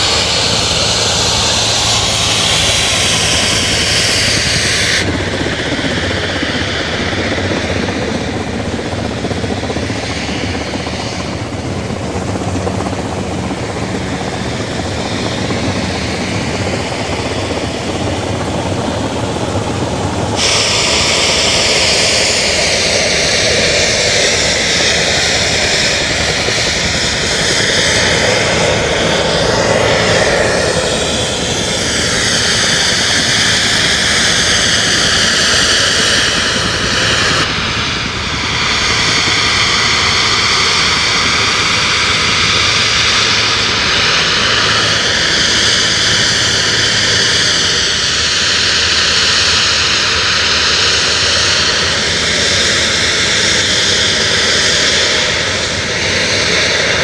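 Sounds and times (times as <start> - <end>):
jet turbine engines whining: 0.0 - 57.0.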